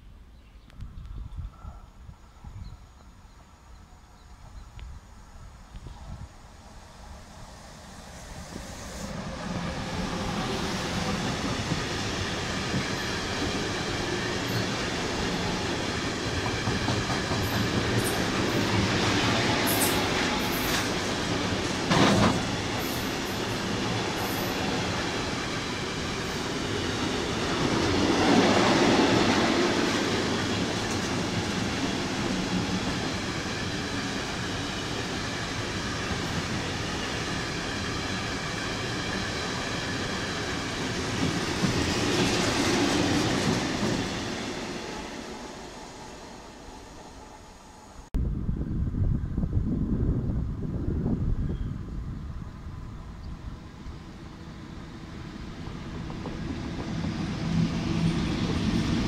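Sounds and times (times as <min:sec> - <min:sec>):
electric locomotive passing: 0:03.0 - 0:48.1, 0:50.1 - 0:59.0
steel wheels rumbling on rails: 0:05.9 - 0:46.6, 0:54.1 - 0:59.0.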